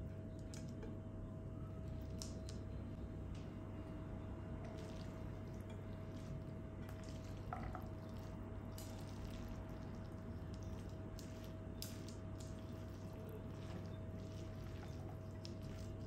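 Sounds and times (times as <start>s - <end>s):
low hum: 0.0s - 16.0s
spatula stirring noodles: 4.7s - 16.0s
spatula scraping pot: 10.5s - 16.0s.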